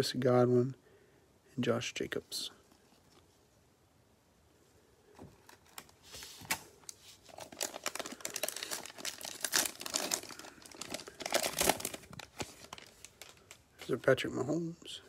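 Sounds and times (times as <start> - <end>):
plastic wrapper crinkling: 5.2 - 14.0.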